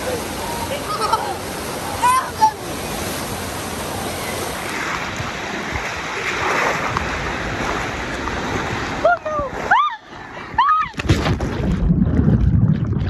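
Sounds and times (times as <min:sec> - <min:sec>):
water rushing down a slide: 0:00.0 - 0:13.0
water splashing into pool: 0:02.6 - 0:09.7, 0:10.9 - 0:13.0.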